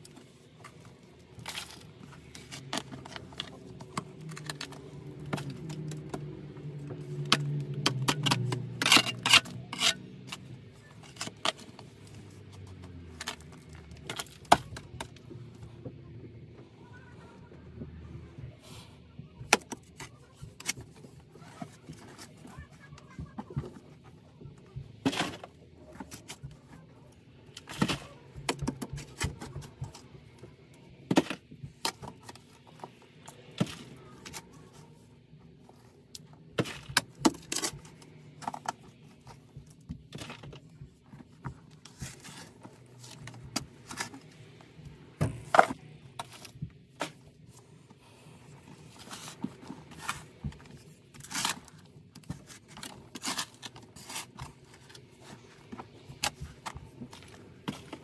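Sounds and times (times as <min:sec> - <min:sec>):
shovel scraping and chopping soil: 0:07.2 - 0:11.9, 0:51.2 - 0:54.7.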